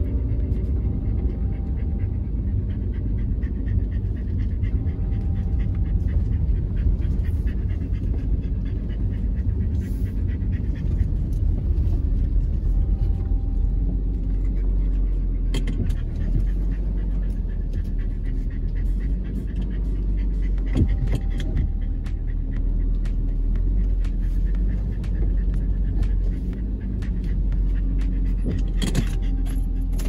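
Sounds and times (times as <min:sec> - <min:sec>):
car engine and road noise: 0:00.0 - 0:30.0
dog panting: 0:00.0 - 0:30.0.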